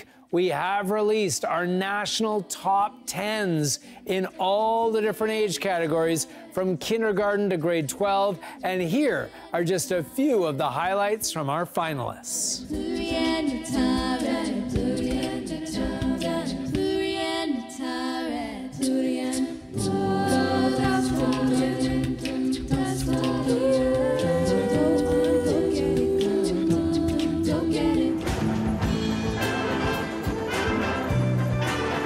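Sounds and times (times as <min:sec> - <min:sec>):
children's choir singing: 0:12.6 - 0:32.0.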